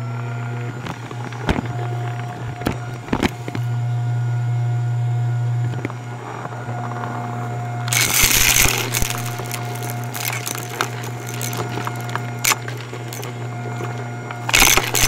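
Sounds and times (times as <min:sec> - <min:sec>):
clicks: 0:07.9 - 0:15.0
debris crunching in vacuum: 0:07.9 - 0:15.0
vacuum cleaner humming: 0:07.9 - 0:15.0.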